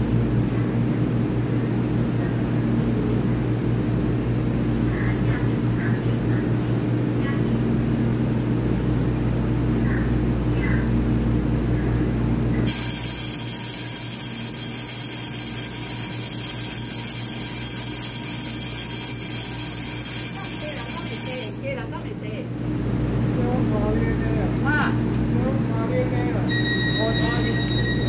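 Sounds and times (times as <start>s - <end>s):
electric bell ringing: 12.7s - 21.8s, 26.5s - 28.0s.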